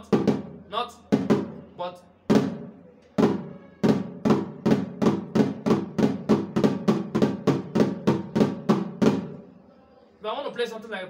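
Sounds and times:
snare drum flams: 2.3 - 9.4.

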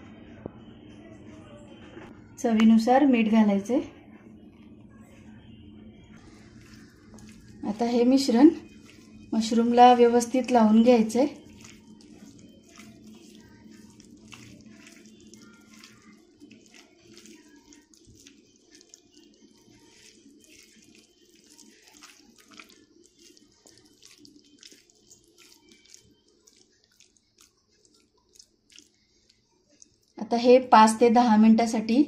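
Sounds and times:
wet squishing and rustling: 6.1 - 30.4.

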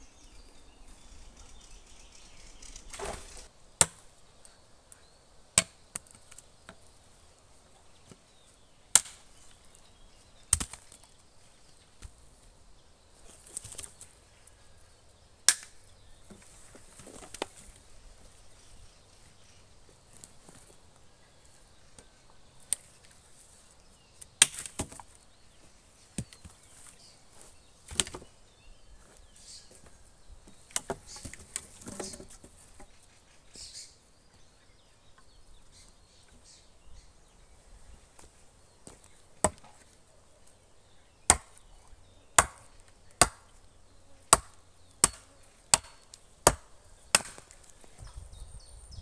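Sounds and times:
rustling of poles: 2.7 - 3.5, 16.2 - 18.4, 29.0 - 33.4
axe chopping wood: 3.8 - 4.0, 5.6 - 6.1, 8.9 - 9.2, 39.4 - 39.8, 41.3 - 41.6, 42.4 - 43.5, 44.3 - 47.6.

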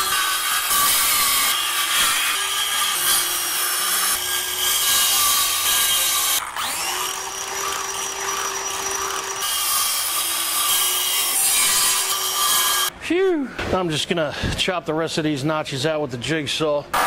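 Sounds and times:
power saw cutting wood: 0.0 - 12.9.

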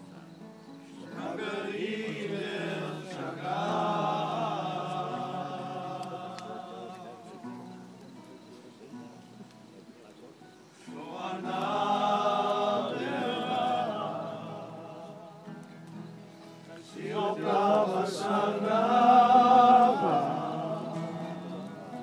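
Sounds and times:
group singing a worship song: 1.0 - 7.1, 10.8 - 15.6, 16.8 - 22.0.

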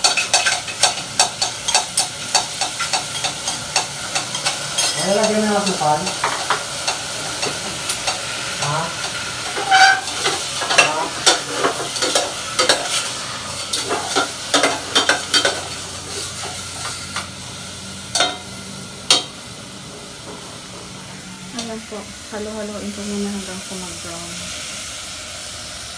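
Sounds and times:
utensil scraping and clinking pot: 0.0 - 17.3
meat sizzling in a pot: 0.0 - 25.9.

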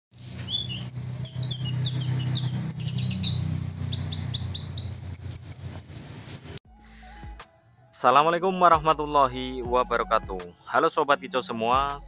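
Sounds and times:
flycatcher singing: 0.1 - 6.6.

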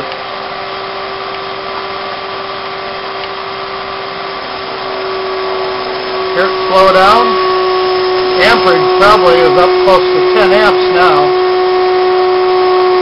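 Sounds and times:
electric motor humming: 0.0 - 13.0.

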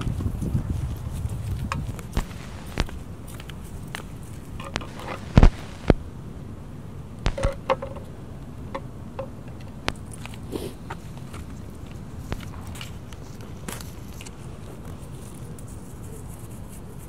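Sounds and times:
footsteps on concrete steps: 0.0 - 6.0
low background noise: 0.0 - 17.0.

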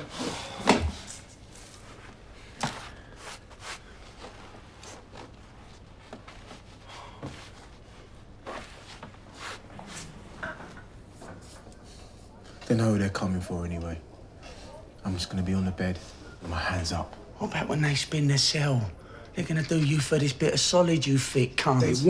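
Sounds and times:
rustling and small knocks: 4.1 - 11.8.

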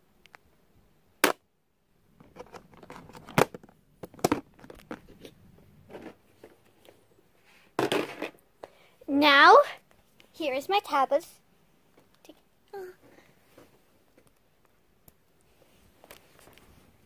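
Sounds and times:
rustling and light clatter: 2.2 - 8.8, 13.0 - 14.7, 15.4 - 17.0.

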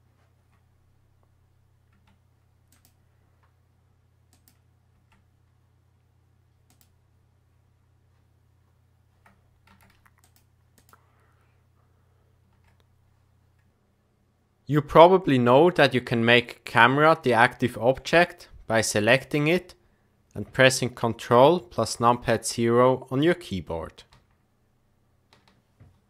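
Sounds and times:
low steady hum: 0.0 - 26.0
keyboard and mouse clicks: 1.9 - 3.5, 4.3 - 5.3, 6.7 - 7.0, 9.2 - 11.0, 25.3 - 26.0.

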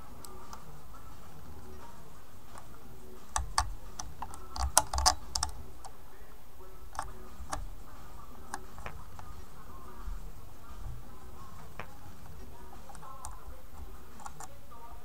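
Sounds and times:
clicks of tool on bridge hardware: 3.4 - 5.6.

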